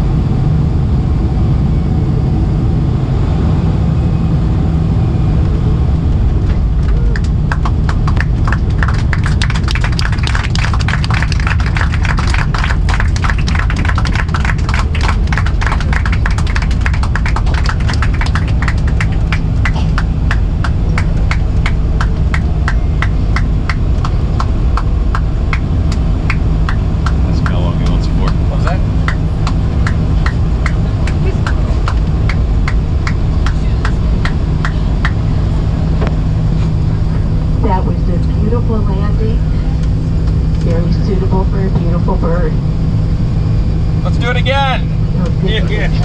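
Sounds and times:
aircraft cabin rumble: 0.0 - 46.0.

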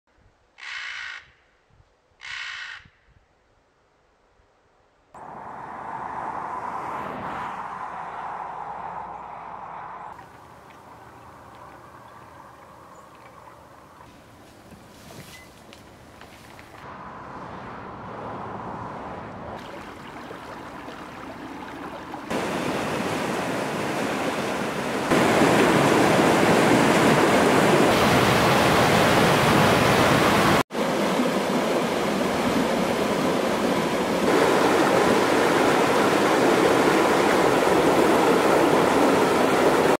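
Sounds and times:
rushing river water: 7.5 - 16.9, 19.4 - 40.0.

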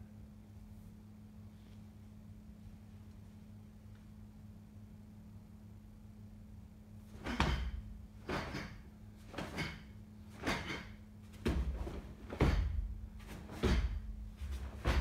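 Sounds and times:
bare feet thudding on carpet: 11.3 - 15.0.

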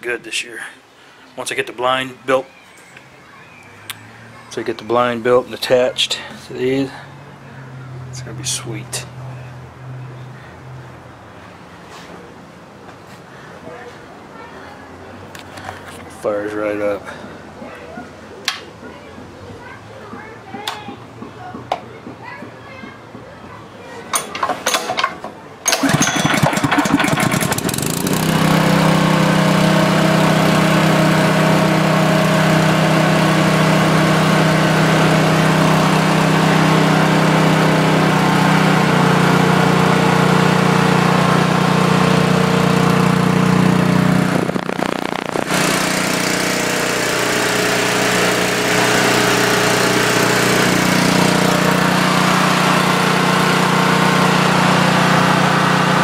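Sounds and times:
small engine pull-started and running: 24.1 - 56.0.

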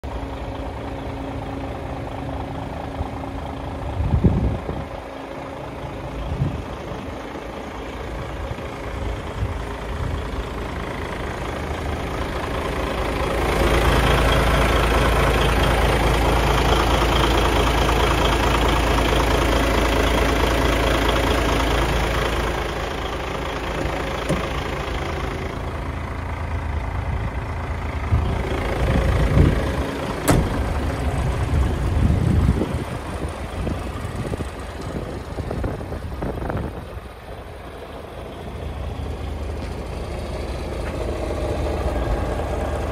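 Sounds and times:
diesel engine idling: 0.0 - 42.9
short thumps: 30.2 - 30.7.

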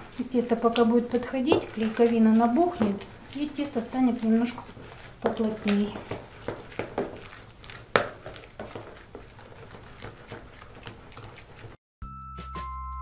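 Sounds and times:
dough stirred in plastic basin: 0.0 - 11.8
music: 12.0 - 13.0.

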